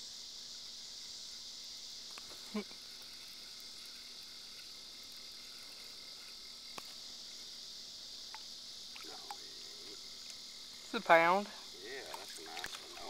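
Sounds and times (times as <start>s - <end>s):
insects droning: 0.0s - 13.0s.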